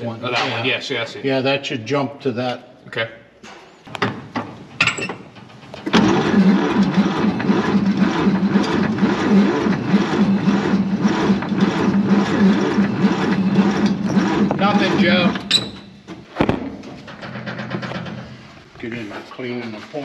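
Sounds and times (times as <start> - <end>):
starter motor cranking: 5.4 - 16.2.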